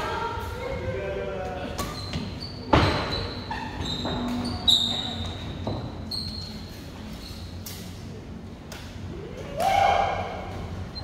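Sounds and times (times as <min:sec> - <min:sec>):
shoes squeaking on court: 0:01.8 - 0:07.8.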